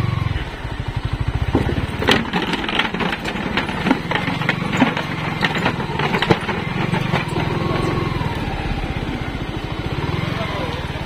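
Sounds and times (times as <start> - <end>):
motorcycle engine at low revs: 0.0 - 11.0
sharp knocks and clatter: 1.4 - 8.5.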